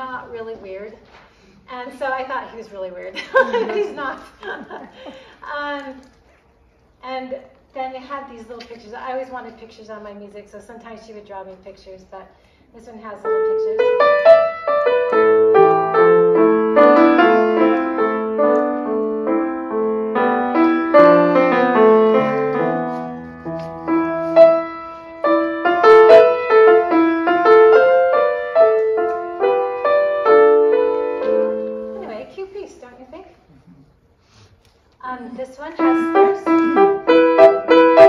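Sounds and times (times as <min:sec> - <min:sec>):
grand piano piece: 0:13.1 - 0:32.7, 0:35.4 - 0:38.0.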